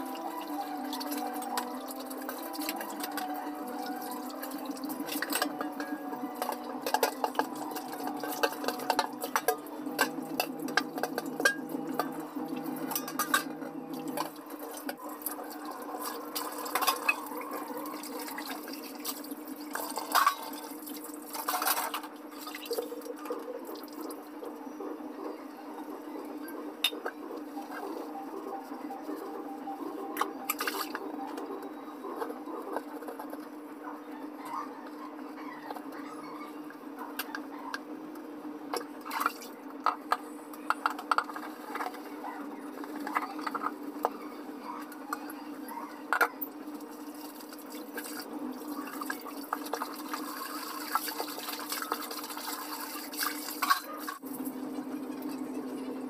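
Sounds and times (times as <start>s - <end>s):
tap water running: 0.0s - 24.2s, 47.0s - 54.2s
dishes being scrubbed: 0.9s - 15.0s, 16.0s - 23.0s, 47.2s - 54.2s
metal dishes clinking: 4.6s - 12.2s, 12.8s - 15.0s, 19.7s - 20.8s.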